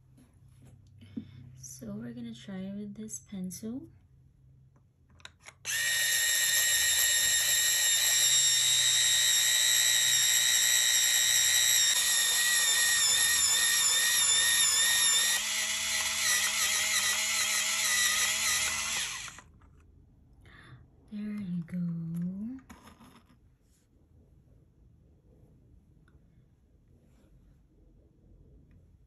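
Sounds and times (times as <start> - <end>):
electric pencil sharpener whirring: 5.4 - 19.5.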